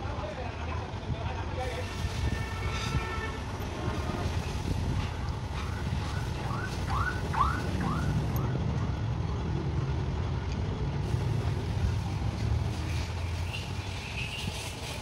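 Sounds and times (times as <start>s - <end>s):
motor vehicles rumbling: 0.0s - 15.0s.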